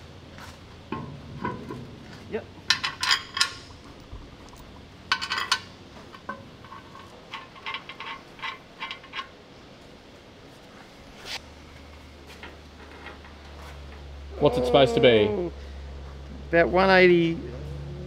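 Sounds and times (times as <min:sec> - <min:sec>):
metal clinking of nuts and spanner: 0:02.6 - 0:09.4.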